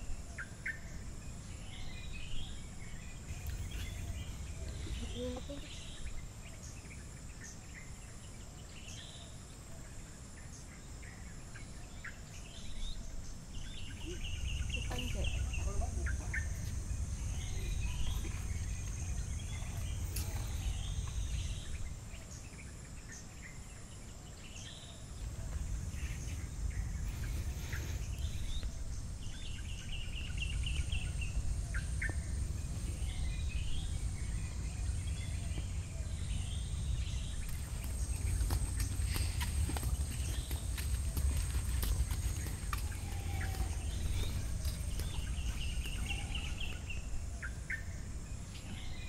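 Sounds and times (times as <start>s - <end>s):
birds chirping: 0.0s - 49.0s
low rumble: 25.2s - 48.5s.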